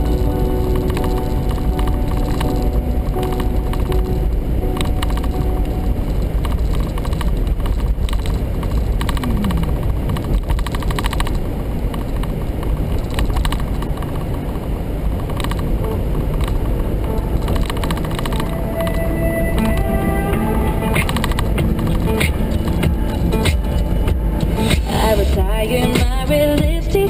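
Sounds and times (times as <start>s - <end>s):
road and engine rumble in car: 0.0s - 18.7s.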